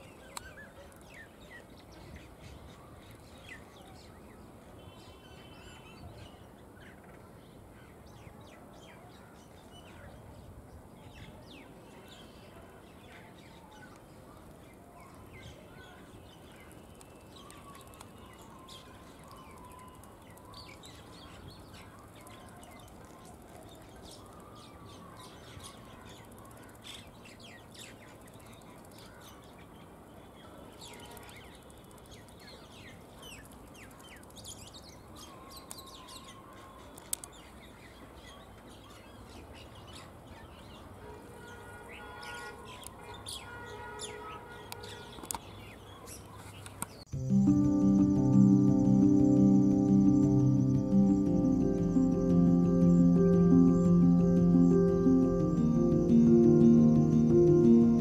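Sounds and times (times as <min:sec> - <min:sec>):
birds chirping: 0:47.0 - 0:58.0.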